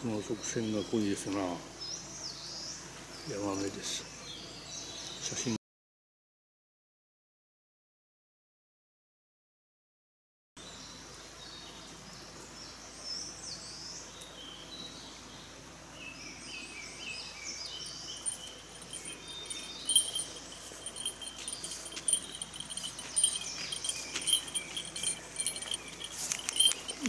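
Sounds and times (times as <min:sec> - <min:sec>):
forest birds singing: 0:00.0 - 0:05.6, 0:10.6 - 0:27.0
small bell jingling: 0:17.8 - 0:27.0
walking footsteps: 0:18.2 - 0:27.0.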